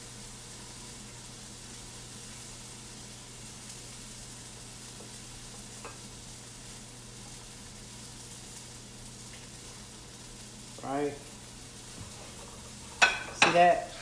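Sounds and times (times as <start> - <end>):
food sizzling on stove: 0.0 - 14.0.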